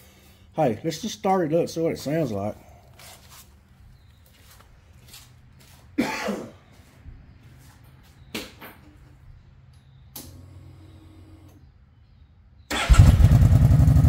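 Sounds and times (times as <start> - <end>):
person coughing: 6.0 - 6.6.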